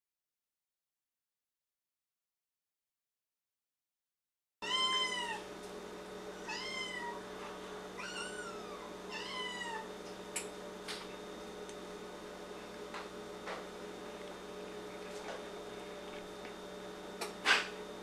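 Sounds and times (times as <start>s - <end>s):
cat meowing: 4.6s - 5.4s, 6.4s - 7.2s, 8.0s - 9.9s
steady hum: 4.6s - 18.0s.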